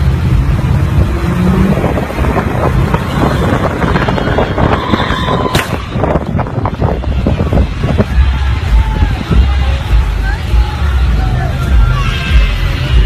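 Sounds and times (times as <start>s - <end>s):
car engine and road noise: 0.0s - 13.0s
wind buffeting microphone: 0.8s - 10.1s.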